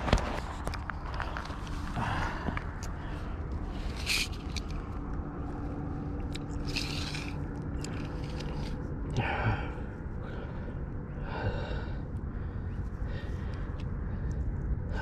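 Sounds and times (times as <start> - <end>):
steady low rumble: 0.0 - 15.0
tape measure scraping and rustling: 3.7 - 4.8, 6.4 - 8.8.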